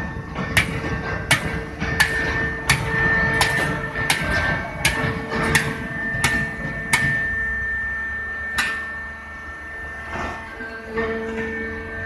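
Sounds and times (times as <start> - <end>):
sharp metallic clanks: 0.0 - 9.4
motor hum and whine: 0.0 - 12.0.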